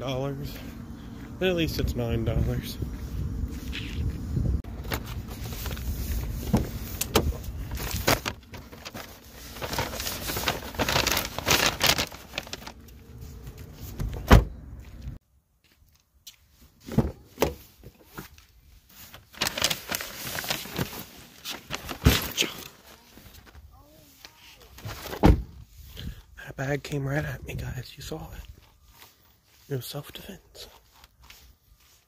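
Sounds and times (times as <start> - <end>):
delivery bag rustling: 4.7 - 14.0, 19.0 - 25.4
car door shutting: 14.0 - 14.6.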